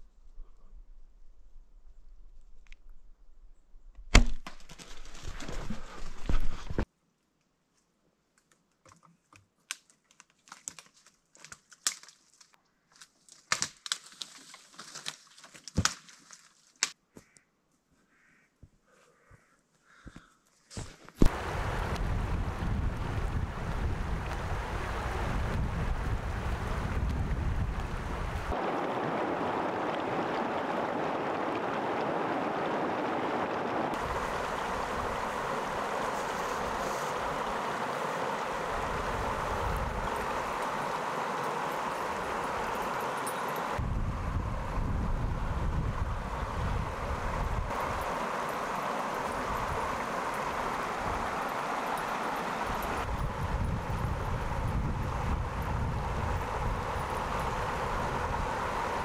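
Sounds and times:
close crackling and rustling: 4.1 - 6.9, 8.4 - 17.0
wind rumbling on microphone: 21.2 - 51.8, 52.4 - 59.0
creek rushing over rocks: 21.2 - 59.0.

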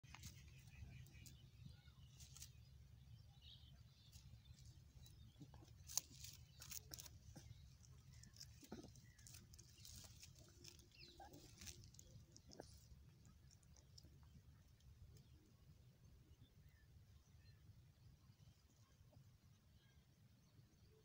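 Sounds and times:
rustling of dry straw: 0.0 - 1.4, 2.0 - 2.9, 4.1 - 13.4.

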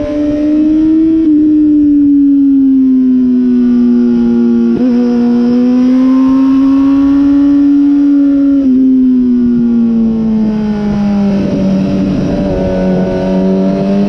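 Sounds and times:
motorcycle engine revving: 0.0 - 14.0
wind rush: 9.4 - 14.0.

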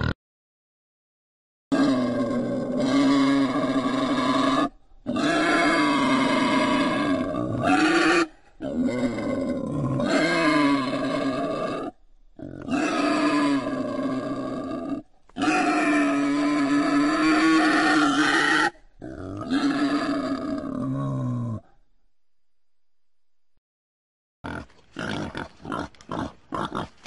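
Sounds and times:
wild boar squealing: 1.7 - 21.4.

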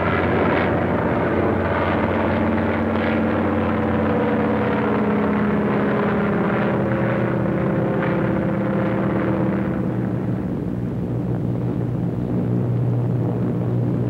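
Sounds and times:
propeller engines droning: 0.0 - 14.0.

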